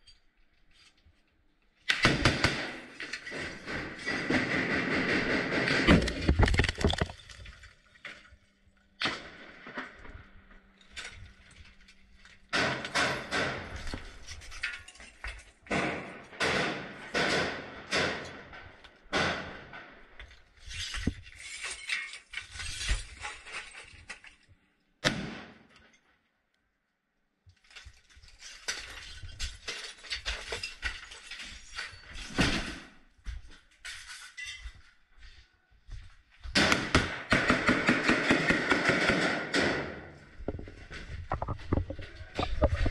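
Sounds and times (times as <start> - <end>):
gunfire bangs: 1.9 - 6.3, 12.5 - 13.9, 15.7 - 20.0, 25.0 - 25.7, 36.5 - 40.2
debris clattering: 2.8 - 16.4, 39.6 - 42.9.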